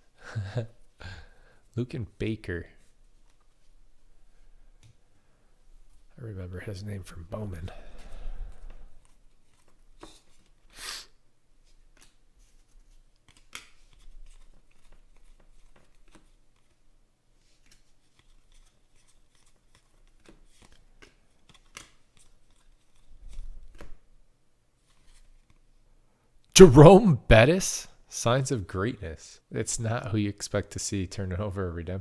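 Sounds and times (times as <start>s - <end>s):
cards flicking and sliding: 11.8s - 16.8s, 17.5s - 24.0s.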